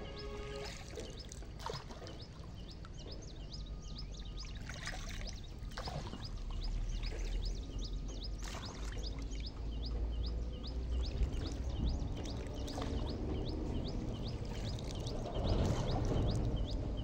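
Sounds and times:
water splashing: 0.0s - 3.3s, 4.2s - 17.0s
bird chirping: 0.0s - 17.0s
low rumble: 6.4s - 17.0s.

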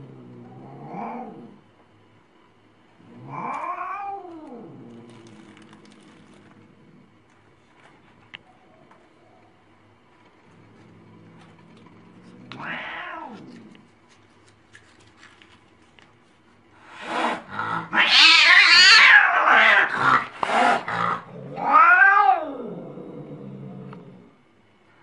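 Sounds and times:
cat yowling and snarling: 3.1s - 5.1s, 12.1s - 13.7s, 17.0s - 23.3s.

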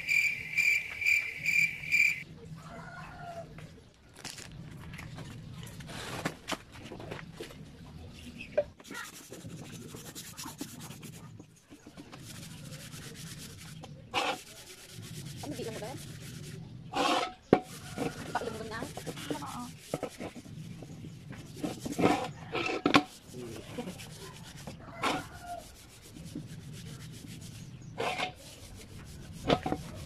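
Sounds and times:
scrubbing metal pot: 8.8s - 30.0s.

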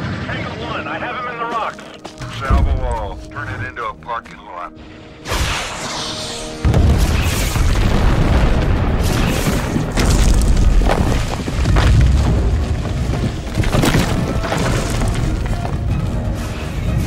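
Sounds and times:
film score: 0.0s - 17.0s
explosion booms: 6.6s - 15.2s
tumbling rock: 7.8s - 16.2s.

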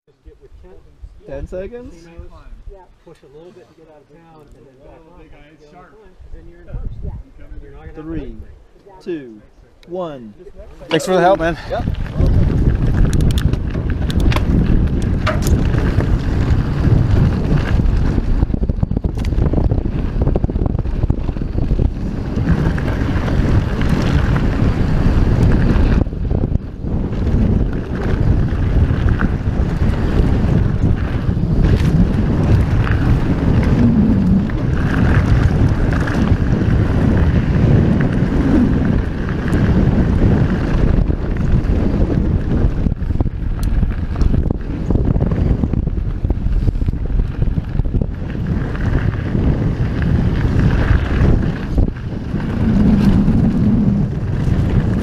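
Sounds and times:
wind buffeting microphone: 0.2s - 3.0s, 4.8s - 9.2s, 10.0s - 55.0s
bike tyres rolling on gravel: 10.6s - 55.0s
bike frame clicks and rattles: 11.9s - 53.4s.

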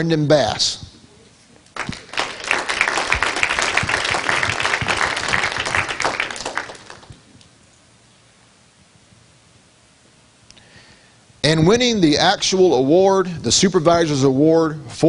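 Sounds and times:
audience applauding: 1.8s - 7.3s.

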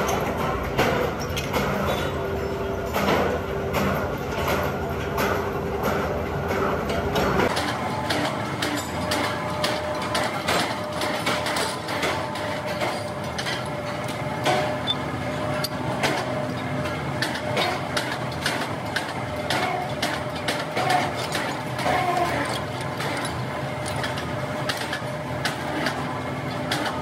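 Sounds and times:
workshop machinery hum: 0.0s - 27.0s.

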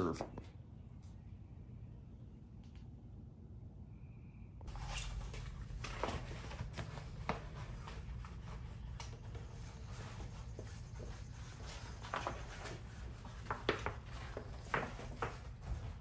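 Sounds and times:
vinyl wrap crinkling: 4.7s - 9.3s, 11.4s - 16.0s.

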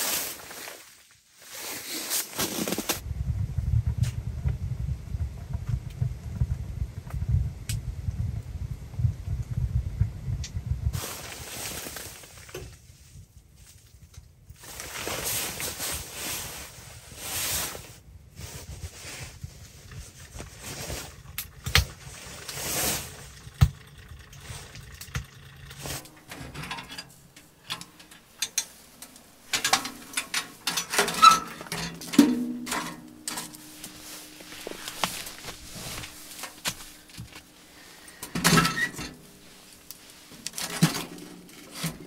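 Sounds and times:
wood fire burning in a stove: 2.6s - 42.0s
fire popping: 18.3s - 38.4s.

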